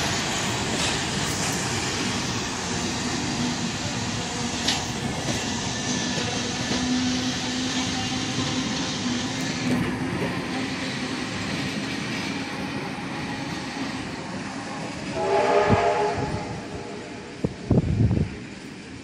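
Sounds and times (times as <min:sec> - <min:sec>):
train wheels on track: 0:00.0 - 0:19.0
train horn blast: 0:15.1 - 0:17.4.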